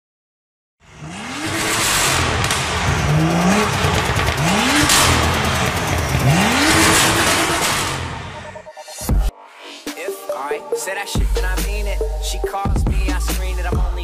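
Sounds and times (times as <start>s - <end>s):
car engine revving: 0.8s - 8.8s
loud steady rushing noise: 1.1s - 8.4s.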